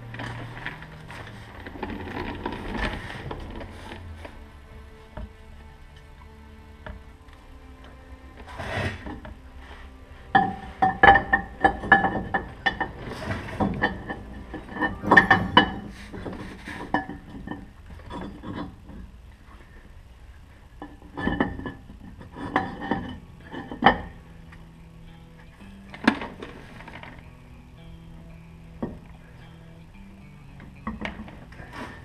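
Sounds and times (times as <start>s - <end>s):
metal cover clinking against housing: 10.4s - 19.0s, 30.6s - 32.0s.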